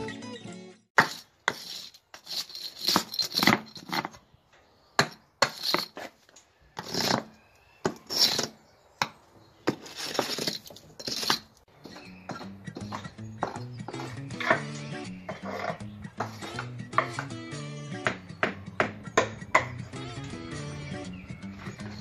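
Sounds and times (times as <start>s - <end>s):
hammer scraping mortar: 1.0s - 4.2s, 5.0s - 6.2s, 6.8s - 17.4s.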